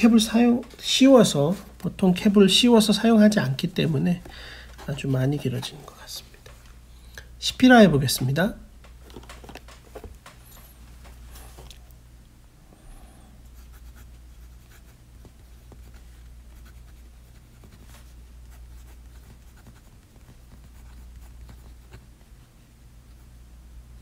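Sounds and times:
steady low hum: 0.0s - 24.0s
fountain pen scratching on paper: 13.6s - 22.1s.

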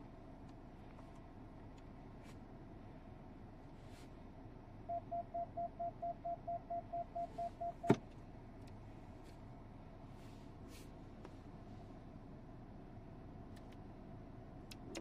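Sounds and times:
gear selector clunk: 14.7s - 15.0s.

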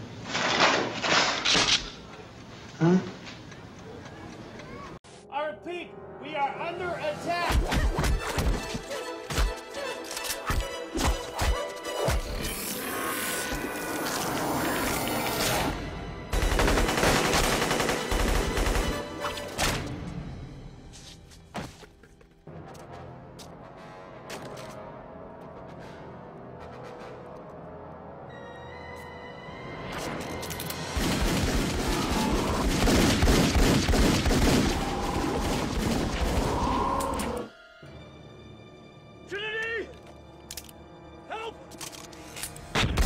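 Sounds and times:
film soundtrack music: 4.7s - 43.0s
rapid gunfire: 16.3s - 19.1s, 30.9s - 36.4s
rapid gunshots: 16.3s - 19.2s, 30.9s - 36.5s.

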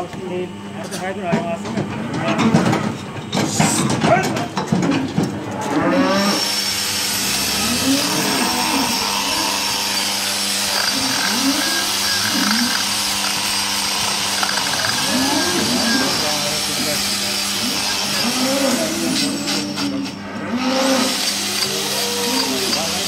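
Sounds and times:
electric hand tool whining: 5.9s - 23.0s.

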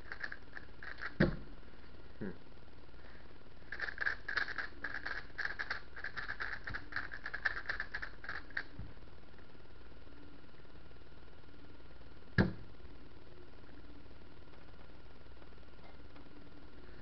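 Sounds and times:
puzzle cube clicking as turned: 0.1s - 1.2s, 3.7s - 8.7s.

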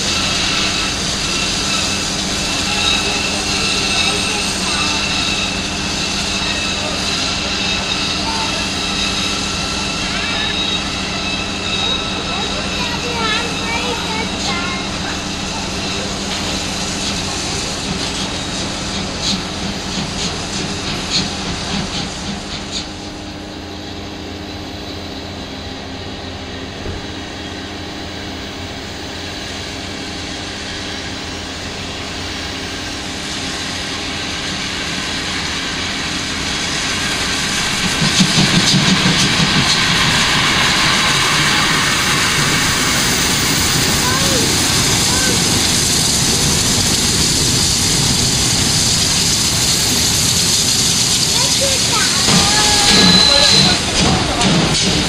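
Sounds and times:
steam locomotive beats: 0.0s - 55.0s
steam locomotive hissing: 0.0s - 55.0s.

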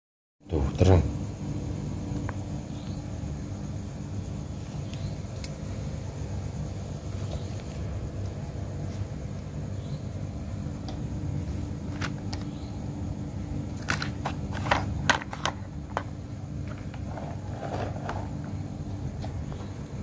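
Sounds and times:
steady low hum: 0.4s - 20.0s
plastic toy trucks clicking and knocking: 13.8s - 17.0s.

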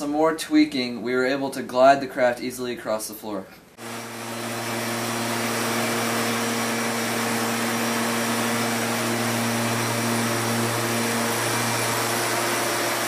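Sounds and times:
leaf blower motor hum: 3.8s - 13.0s.

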